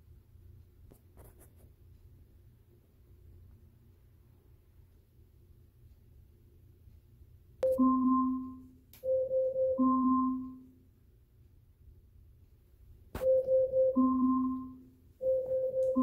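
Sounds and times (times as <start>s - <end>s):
marimba-like timer alarm chime: 7.6s - 10.8s, 13.2s - 16.0s.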